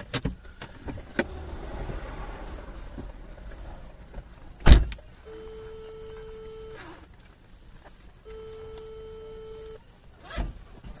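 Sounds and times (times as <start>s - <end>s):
electronic warning tone: 1.3s - 7.0s, 7.6s - 10.1s
loud thump: 4.2s - 5.0s.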